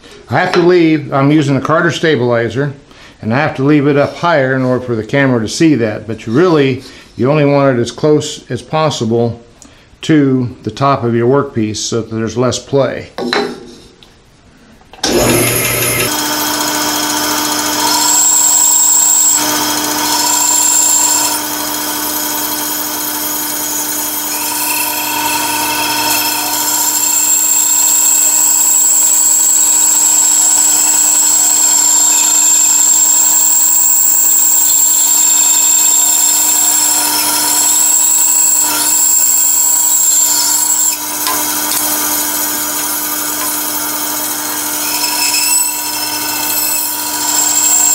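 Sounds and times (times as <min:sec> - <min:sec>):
bandsaw cutting whine: 0:15.0 - 0:47.9
bandsaw motor hum: 0:15.0 - 0:47.9.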